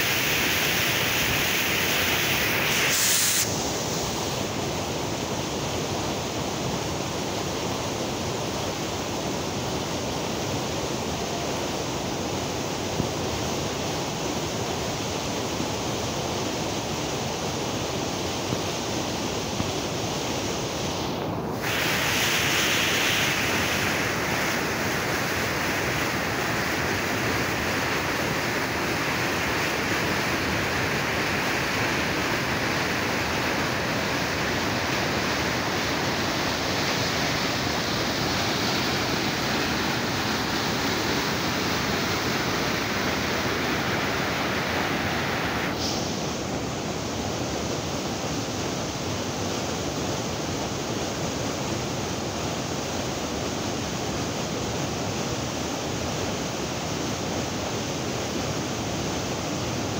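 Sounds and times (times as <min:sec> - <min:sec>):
waterfall rushing: 0:19.3 - 0:47.2.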